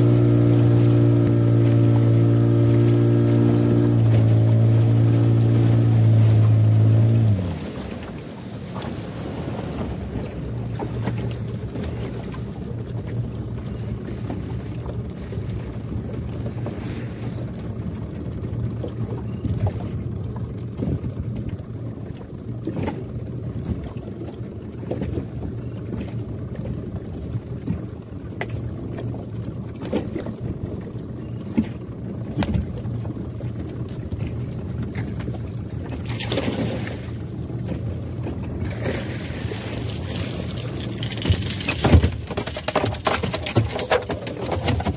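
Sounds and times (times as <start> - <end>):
outboard motor droning: 0.0 - 44.9
water slapping boat hull: 0.0 - 44.9.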